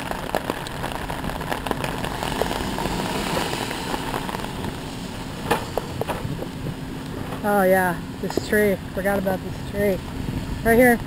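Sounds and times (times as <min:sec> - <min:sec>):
rain on an umbrella: 0:00.0 - 0:08.6.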